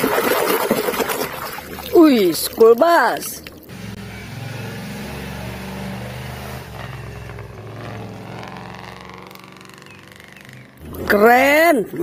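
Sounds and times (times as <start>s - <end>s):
bus engine low drone: 3.7s - 11.2s.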